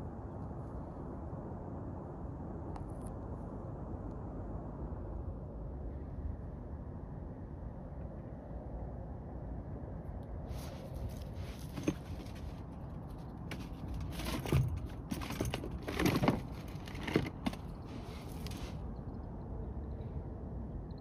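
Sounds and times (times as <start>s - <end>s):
low wind rumble: 0.0s - 21.0s
gear rustling in fabric bin: 10.5s - 18.8s.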